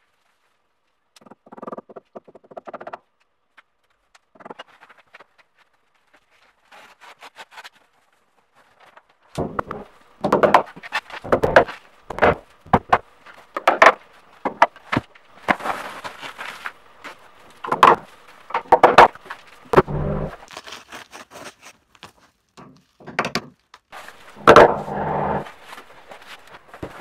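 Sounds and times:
foil crinkling and rustling: 14.0 - 18.5, 20.4 - 24.4.

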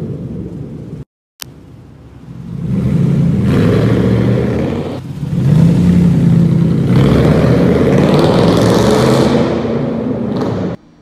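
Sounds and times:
engine revving hard: 2.5 - 10.8.

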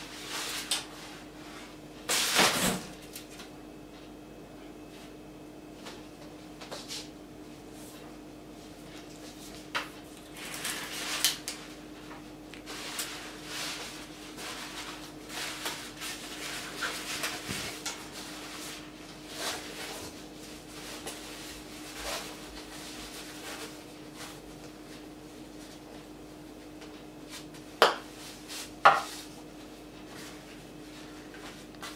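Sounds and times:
faint steady hum: 0.0 - 31.9
fabric and plastic rustling: 10.3 - 24.5.

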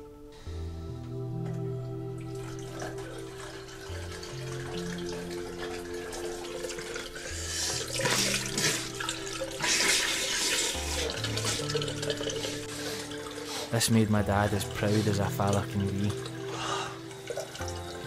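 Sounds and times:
soft background music: 0.0 - 18.0
water splashing on face: 2.2 - 13.8
tap water running into sink: 2.2 - 18.0.

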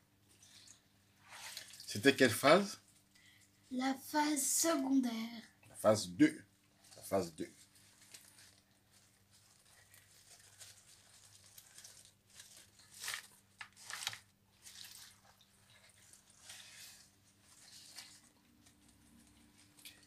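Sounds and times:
wet leaves rustling in plastic basin: 0.3 - 2.9, 6.8 - 20.0.

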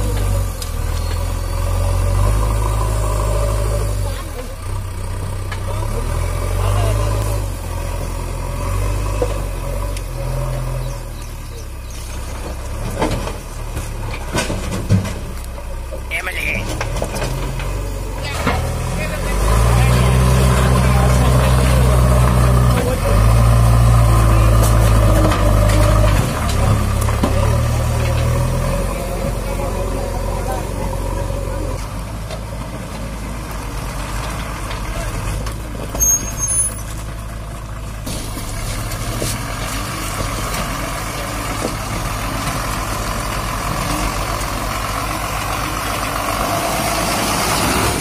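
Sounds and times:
diesel engine under load: 0.0 - 48.0.

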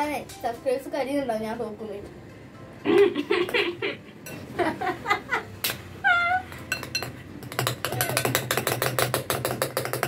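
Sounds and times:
high-pitched mewing cries: 6.0 - 6.6
spoon clinking ceramic bowl: 6.6 - 8.8.

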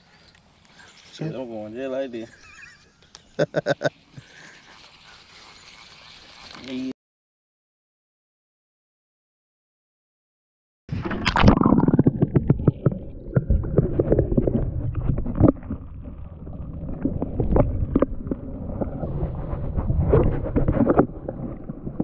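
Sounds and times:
deep rumble: 10.9 - 22.0.

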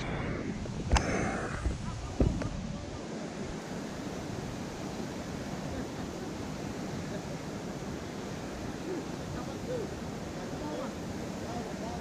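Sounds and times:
river rushing over a dam: 0.0 - 12.0.

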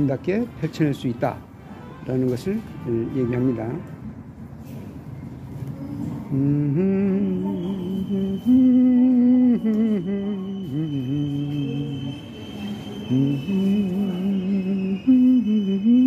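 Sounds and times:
person humming a slow tune: 6.3 - 12.3, 13.0 - 16.0
faint high whine: 6.3 - 16.0.

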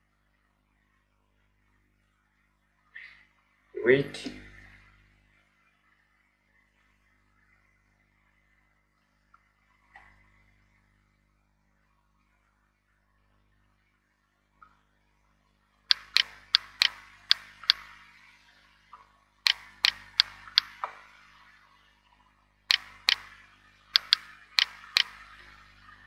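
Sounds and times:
sharp ringing clicks: 15.9 - 17.8, 19.5 - 20.8, 22.7 - 23.3, 24.0 - 25.2.

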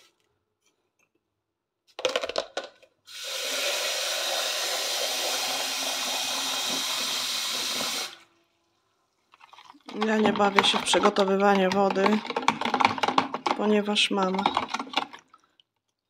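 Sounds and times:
tap water running into jug: 3.1 - 8.3, 9.3 - 15.8.

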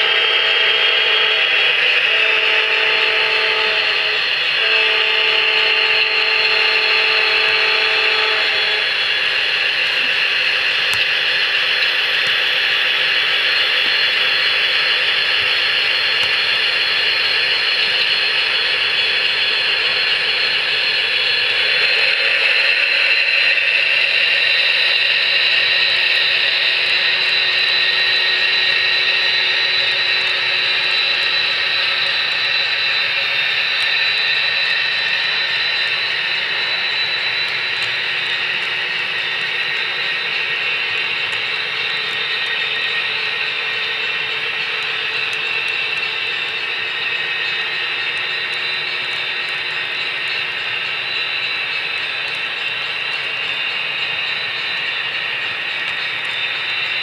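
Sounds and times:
model locomotive horn blasts: 0.0 - 10.3
model train mechanical drone: 0.0 - 57.0.

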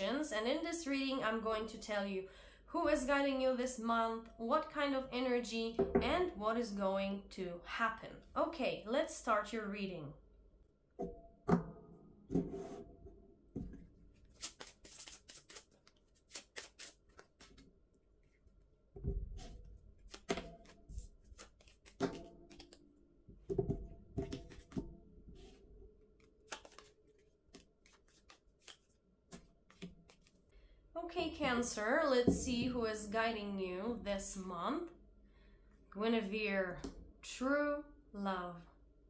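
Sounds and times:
cards shuffling rustle: 14.1 - 18.4, 19.4 - 22.8, 24.2 - 24.8, 26.2 - 30.5.

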